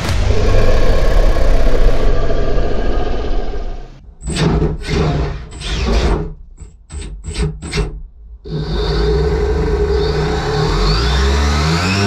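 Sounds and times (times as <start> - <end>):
loud rock music: 0.0 - 2.3.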